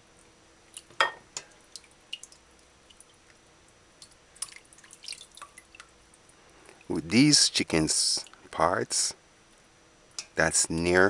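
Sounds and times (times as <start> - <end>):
water splashing in a metal pot: 1.6 - 3.3, 4.0 - 6.0.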